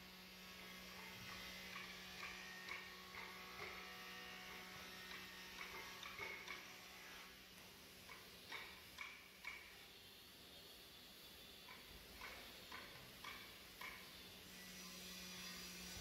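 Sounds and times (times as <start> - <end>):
soft ticks: 8.0 - 9.8, 11.6 - 14.1.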